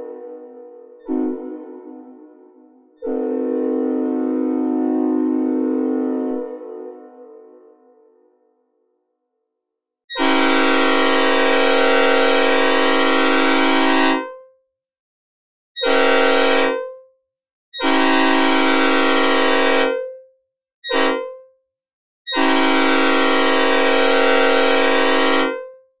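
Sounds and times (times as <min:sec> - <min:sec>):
train horn blasts: 0:00.0 - 0:08.5, 0:10.1 - 0:14.4, 0:15.8 - 0:17.0, 0:17.8 - 0:20.1, 0:20.9 - 0:21.4, 0:22.3 - 0:25.8.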